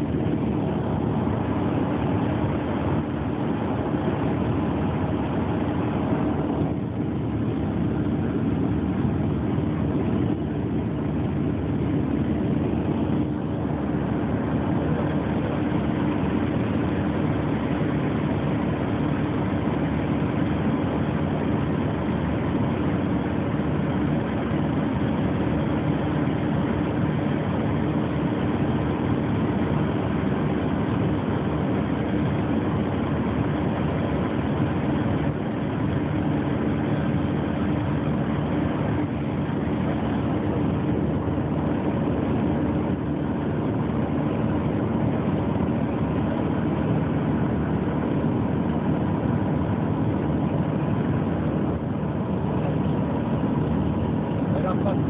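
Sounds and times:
propeller aircraft engine drone: 0.0 - 55.0.

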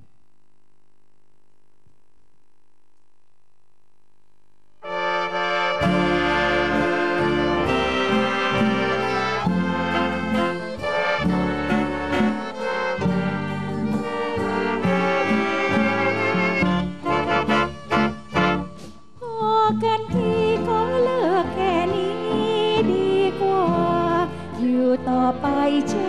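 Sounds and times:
big band instrumental: 4.8 - 19.2.

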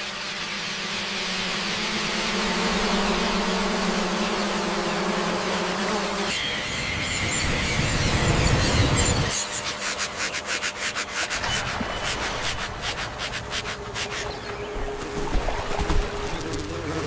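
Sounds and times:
buzzing hum of wings: 0.0 - 17.0
bats chattering squeaks: 6.3 - 14.9
low drone: 6.3 - 17.0.

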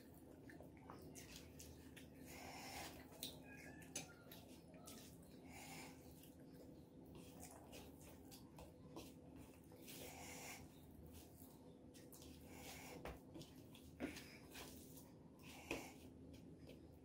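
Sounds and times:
wet chewing and lip-smacking: 0.0 - 5.4, 6.0 - 8.9
rice kneaded by hand: 0.0 - 17.0.

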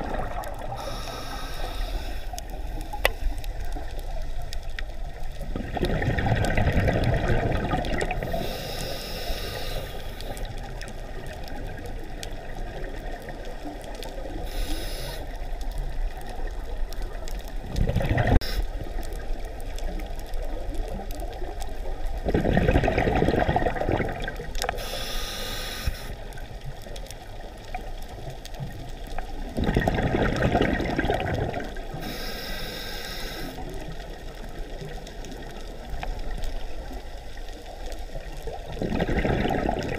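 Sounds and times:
exhaled bubbles rushing: 0.0 - 0.8, 5.4 - 8.4, 17.6 - 18.4, 22.1 - 24.7, 29.4 - 31.9, 38.2 - 39.9
regulator hiss on inhale: 0.6 - 4.2, 8.2 - 10.6, 14.1 - 15.7, 18.4 - 19.0, 24.6 - 26.4, 31.9 - 34.4.

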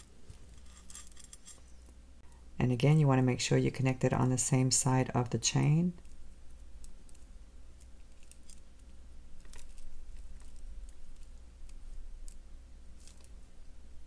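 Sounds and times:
chain links and wire clicking: 0.0 - 1.7
faint low hum: 0.0 - 14.0.

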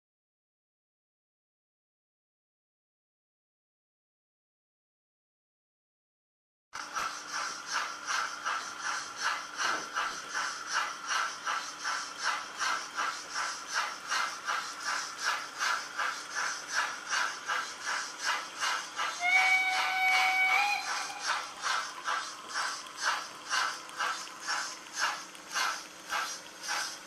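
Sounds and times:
model steam locomotive chuffing: 6.8 - 27.0
locomotive whistle: 19.0 - 21.8.

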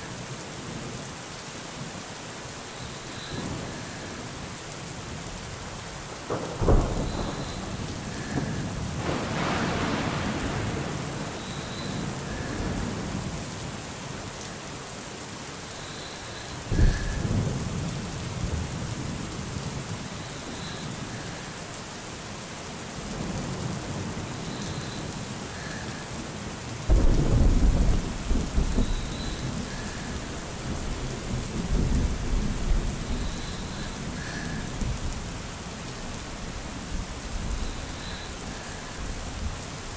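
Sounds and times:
steady rain: 0.0 - 39.9
thunder cracks rolling into rumble: 6.3 - 11.5, 26.9 - 33.3.

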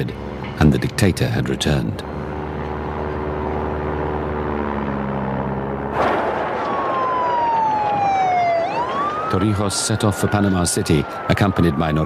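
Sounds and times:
low engine drone: 0.0 - 9.4
siren wailing: 2.7 - 12.0.

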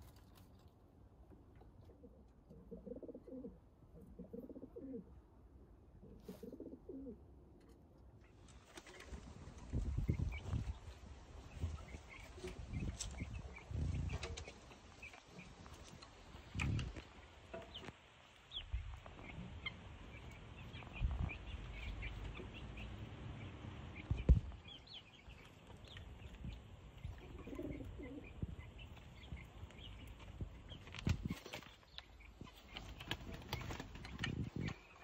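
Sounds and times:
hen clucking: 6.0 - 7.2, 25.3 - 30.7.

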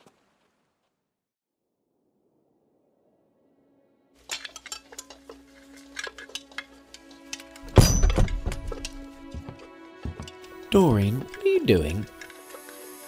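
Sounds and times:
pots and cutlery clinking: 4.3 - 8.9.

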